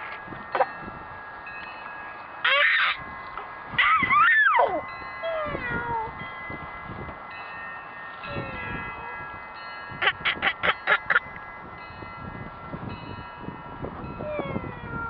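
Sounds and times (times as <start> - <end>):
steady high ringing tones: 0.0 - 15.0.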